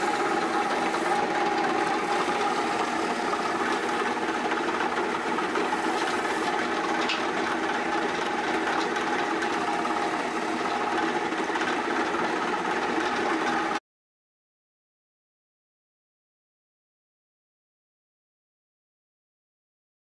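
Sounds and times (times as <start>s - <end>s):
wood lathe humming and rattling: 0.0s - 13.8s.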